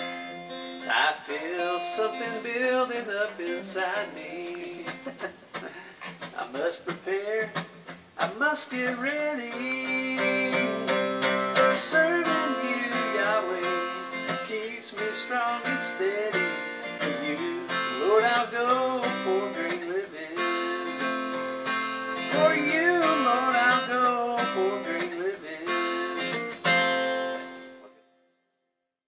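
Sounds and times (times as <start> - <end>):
person singing: 0.0 - 26.6
strummed acoustic guitar: 0.0 - 28.2.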